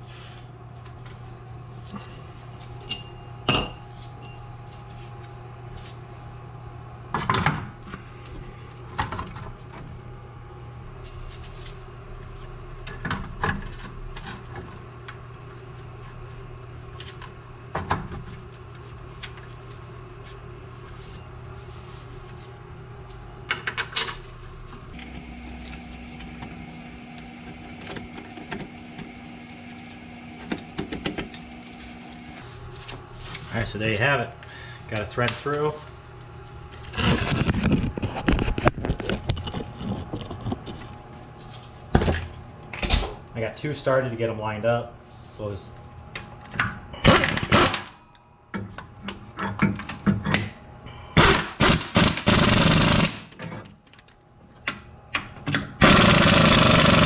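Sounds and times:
steady low hum: 0.0 - 57.0
higher steady hum: 24.2 - 47.1.

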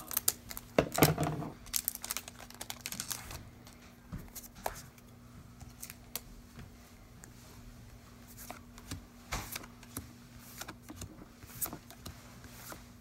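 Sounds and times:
plastic wrapper crinkling: 0.0 - 3.4.

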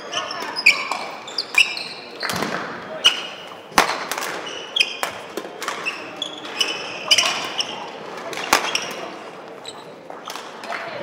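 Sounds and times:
shoes squeaking on court: 0.0 - 3.7, 4.3 - 10.6
rackets hitting shuttlecock: 0.8 - 9.2.

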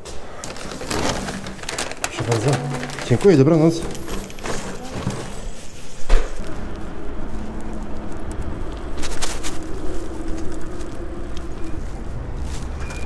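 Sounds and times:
wind and tyre noise: 6.2 - 13.0.

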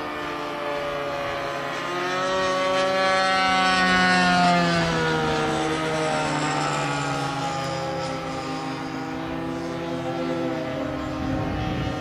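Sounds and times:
model plane engine and propeller: 0.0 - 12.0.

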